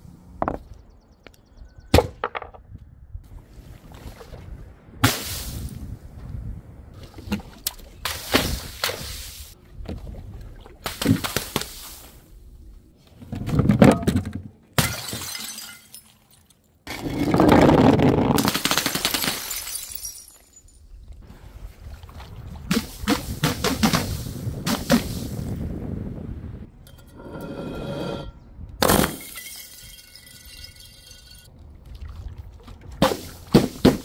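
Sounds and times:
glass bottles shattering: 14.8s - 16.5s, 19.1s - 20.9s, 28.9s - 31.5s.

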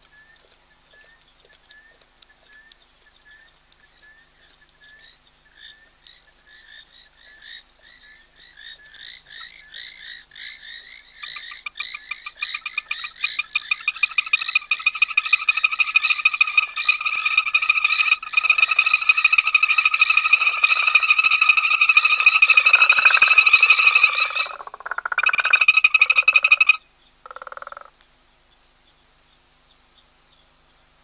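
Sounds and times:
frogs calling: 0.0s - 28.1s
fast pulsing frog call: 4.8s - 28.0s.

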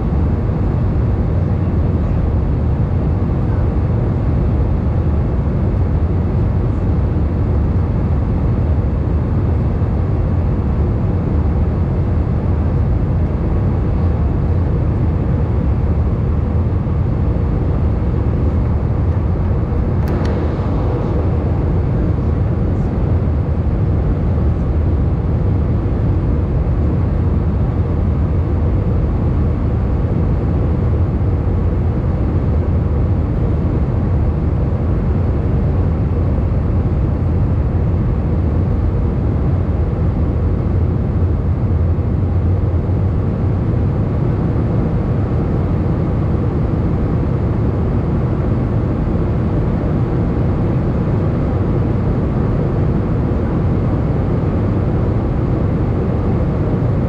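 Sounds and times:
airplane engines rumbling: 0.0s - 57.0s
rushing air: 18.2s - 23.8s
brief click: 20.0s - 20.4s.

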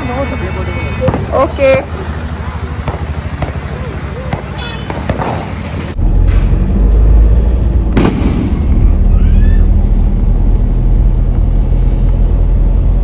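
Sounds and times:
vehicle rumble: 0.0s - 13.0s
firecracker bang: 2.8s - 6.7s, 7.7s - 10.0s.

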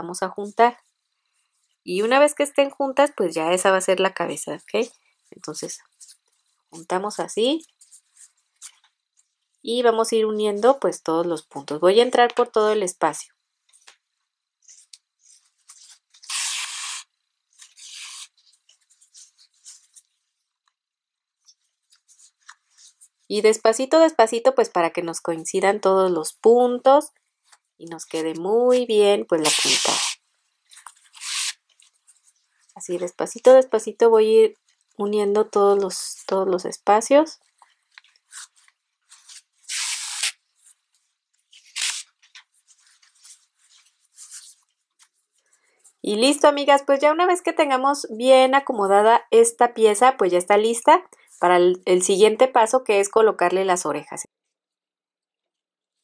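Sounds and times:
yarn rustling on crochet hook: 3.4s - 9.8s, 14.6s - 20.4s, 21.3s - 23.5s, 26.5s - 46.3s
hissing rubs: 14.6s - 20.3s, 29.4s - 32.8s, 37.4s - 46.0s
yarn rustling and rubbing: 14.6s - 20.4s, 21.4s - 23.3s, 37.4s - 45.4s.

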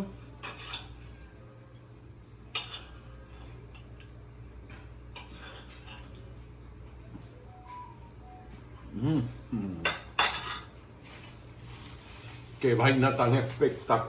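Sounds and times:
low steady hum: 0.0s - 14.0s
cutlery scraping on a plate: 0.3s - 1.1s, 2.4s - 4.1s, 4.8s - 6.3s, 9.9s - 10.7s.

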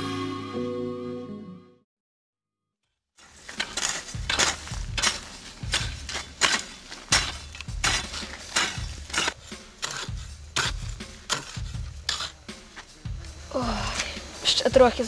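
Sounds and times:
hoes chopping into dry soil: 3.2s - 14.3s.

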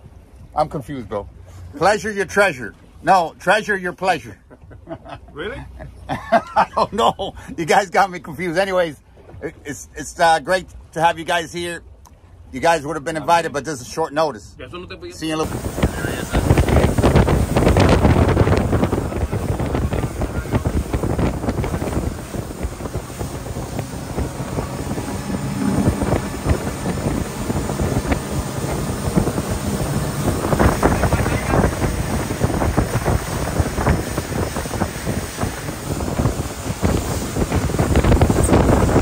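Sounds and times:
rushing boat wake: 0.0s - 39.0s
boat motor: 14.8s - 39.0s
wind buffeting microphone: 15.4s - 39.0s.

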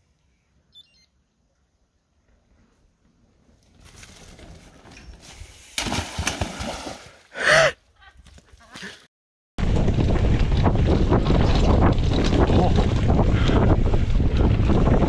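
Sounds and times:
bike splashing into water: 5.7s - 7.2s
person crying out: 7.4s - 7.8s.

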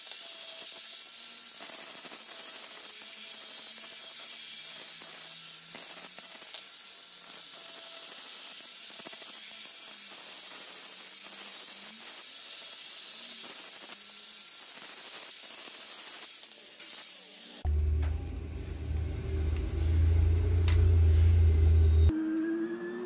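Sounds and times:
grinder motor hum: 17.6s - 22.1s.

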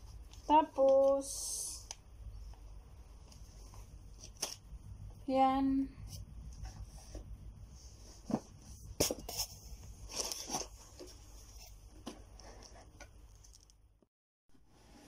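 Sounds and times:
steady low hum: 0.0s - 13.4s
handling knocks and crinkles: 8.1s - 13.8s.

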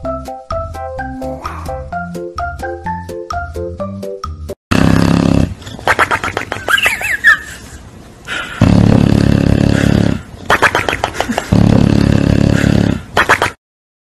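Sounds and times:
dog snoring loudly: 4.7s - 5.6s, 8.6s - 10.2s, 11.5s - 13.0s.

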